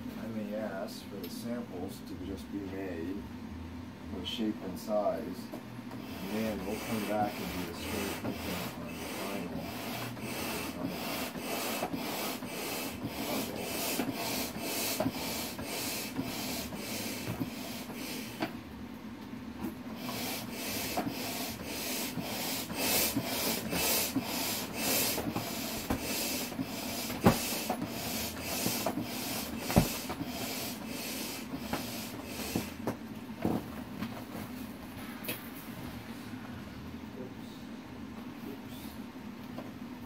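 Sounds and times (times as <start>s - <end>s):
hand air pump rushing air: 6.0s - 18.5s, 20.0s - 32.8s.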